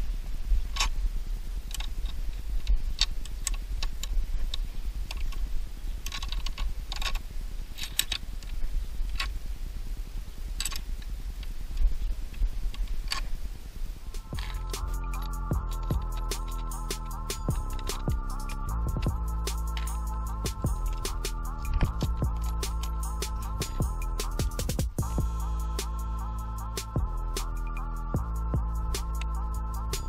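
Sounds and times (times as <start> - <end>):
steady low rumble: 0.0 - 30.0
small metallic clicks: 1.6 - 9.4, 10.5 - 13.4, 14.1 - 25.0.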